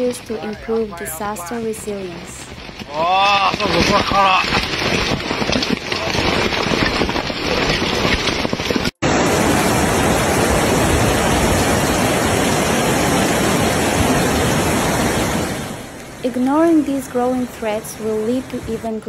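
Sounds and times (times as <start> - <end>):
flooded river rushing: 0.0 - 19.0
heavy rain on umbrellas and rocks: 0.0 - 19.0.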